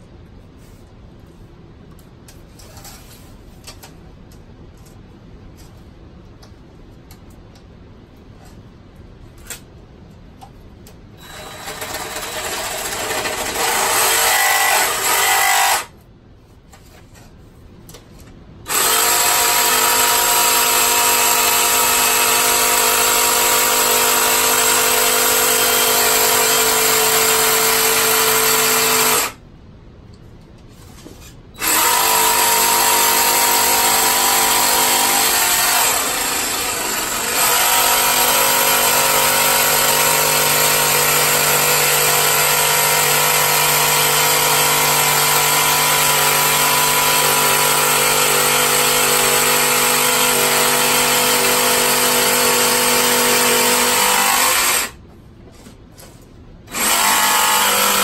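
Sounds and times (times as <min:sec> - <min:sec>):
jigsaw cutting plastic pipe: 0:11.2 - 0:15.9, 0:18.7 - 0:29.4, 0:31.6 - 0:55.0, 0:56.7 - 0:58.0.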